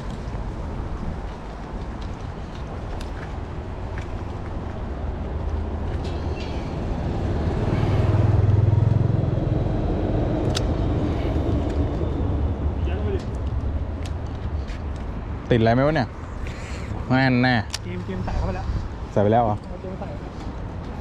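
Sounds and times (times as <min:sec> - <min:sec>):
small motorbike engine passing: 0:06.8 - 0:10.4.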